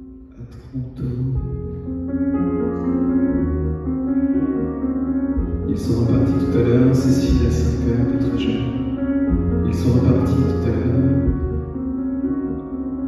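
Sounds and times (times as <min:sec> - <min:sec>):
grand piano chords: 0:00.0 - 0:13.0.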